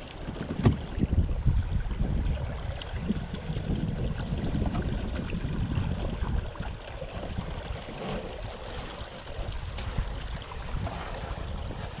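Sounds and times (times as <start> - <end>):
river water washing: 0.0 - 12.0
wind buffeting microphone: 0.0 - 12.0.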